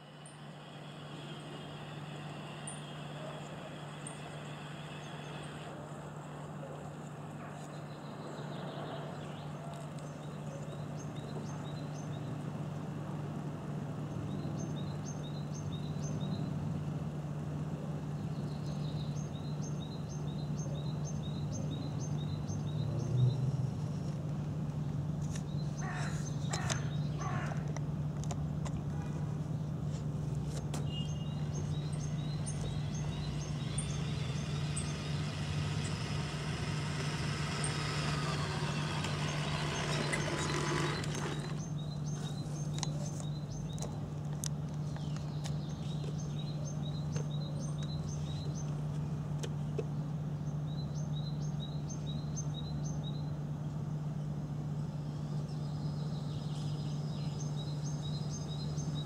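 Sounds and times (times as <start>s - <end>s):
small birds chirping: 18.0s - 59.0s
crow cawing: 25.8s - 27.6s
model truck motor humming: 31.5s - 42.9s.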